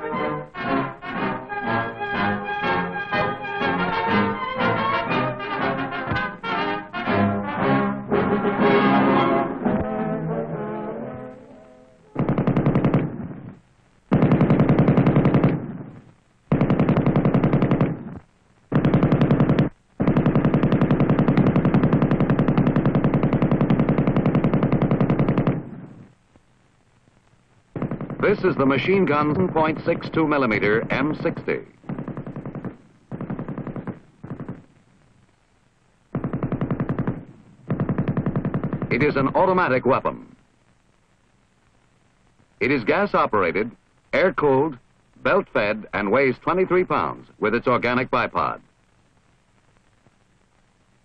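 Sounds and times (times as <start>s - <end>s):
machine gun bursts: 12.1s - 13.3s, 14.1s - 15.7s, 18.7s - 25.6s
machine gun automatic bursts: 12.1s - 13.4s, 14.1s - 15.8s, 16.5s - 25.8s, 27.8s - 34.7s, 36.1s - 39.4s.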